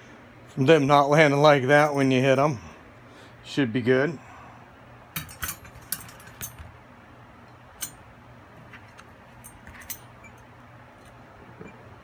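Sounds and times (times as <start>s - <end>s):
metal wire clinking: 5.2s - 6.7s, 7.5s - 8.0s, 8.9s - 11.2s.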